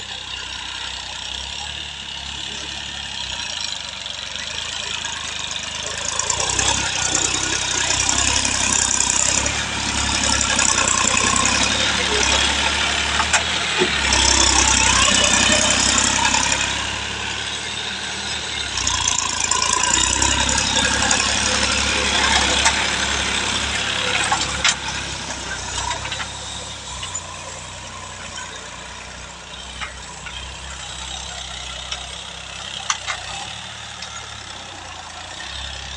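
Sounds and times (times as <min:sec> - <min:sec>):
tractor diesel engine under load: 0:00.0 - 0:35.9.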